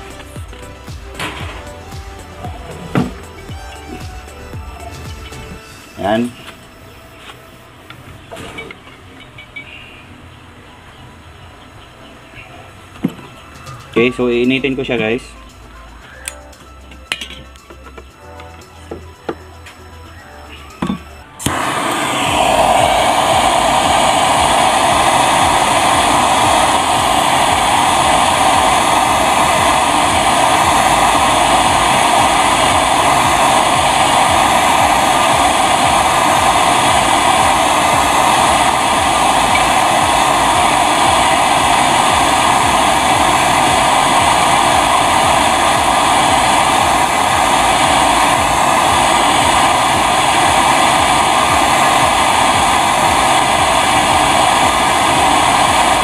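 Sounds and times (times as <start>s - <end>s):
gas torch flame rushing: 21.4s - 56.0s.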